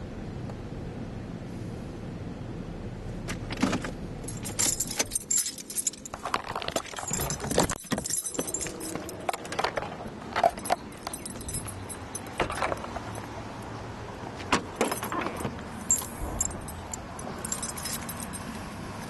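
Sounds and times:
low car cabin hum: 0.0s - 19.0s
car keys jingling: 4.2s - 19.0s.

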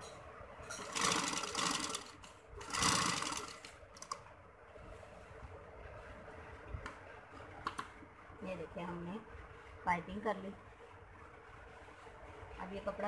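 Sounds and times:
sewing machine stitching: 0.8s - 4.2s.

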